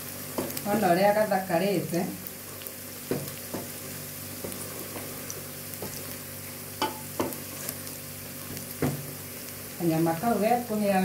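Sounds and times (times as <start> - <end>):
meat and onion sizzling: 0.0 - 11.0.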